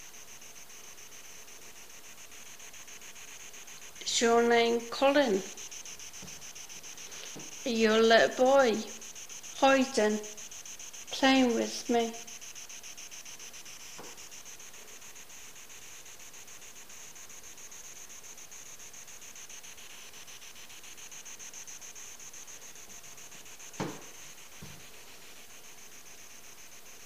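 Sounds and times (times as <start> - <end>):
fluttering static hiss: 0.0 - 27.0
faint tap: 23.8 - 24.0
sharp knock: 23.8 - 24.8.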